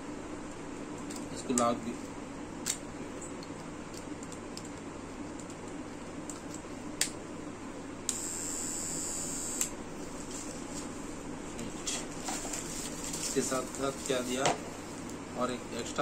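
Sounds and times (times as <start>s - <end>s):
hair clipper whirring: 8.1s - 9.8s.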